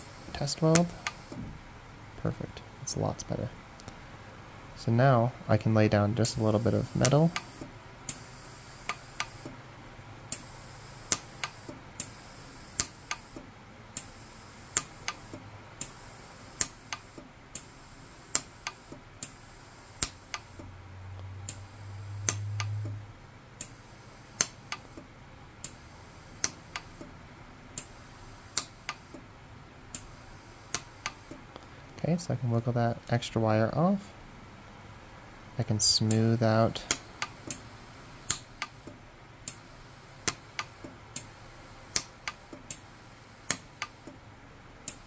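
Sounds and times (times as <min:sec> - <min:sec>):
welder pulse clicks: 0:00.0 - 0:01.4, 0:06.2 - 0:09.6, 0:10.3 - 0:20.7, 0:21.5 - 0:23.0, 0:23.6 - 0:25.0, 0:25.6 - 0:27.2, 0:27.8 - 0:29.2, 0:29.9 - 0:31.4, 0:36.1 - 0:44.2.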